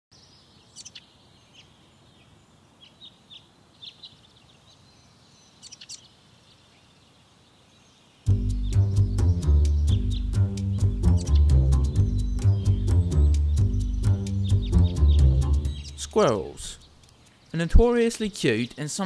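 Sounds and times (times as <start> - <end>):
small birds chirping: 0.1 - 19.0
steady background hiss: 0.2 - 8.3, 15.9 - 19.0
music with plucked low strings: 8.3 - 16.7.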